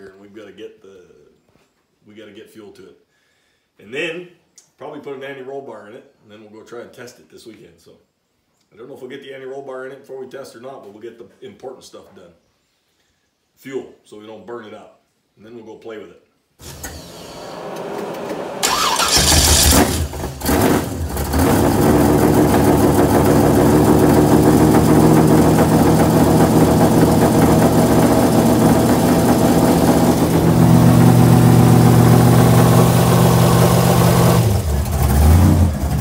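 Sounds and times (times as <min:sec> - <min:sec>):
car engine starting and idling: 0:16.6 - 0:36.0.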